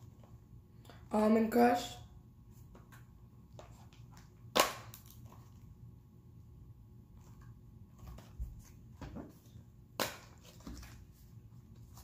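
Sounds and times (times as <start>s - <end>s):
cardboard snap: 4.5s - 5.2s.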